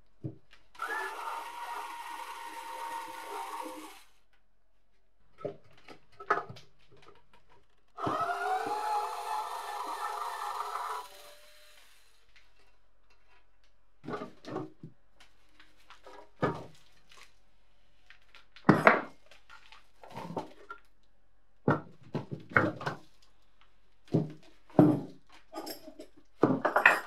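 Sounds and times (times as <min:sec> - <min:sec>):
rotary power tool winding down: 0:00.8 - 0:04.1, 0:08.0 - 0:12.2.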